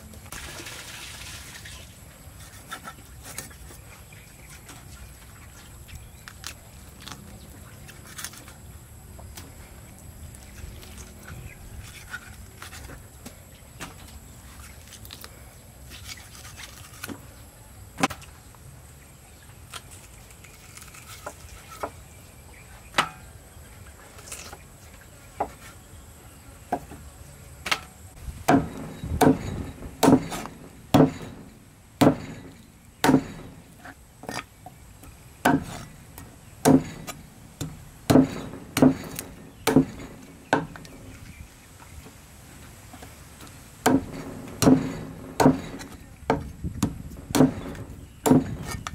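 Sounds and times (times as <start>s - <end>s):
cleaver chopping on wooden block: 28.5s - 31.4s, 32.0s - 33.6s, 35.4s - 35.9s, 36.6s - 40.9s, 43.8s - 48.9s.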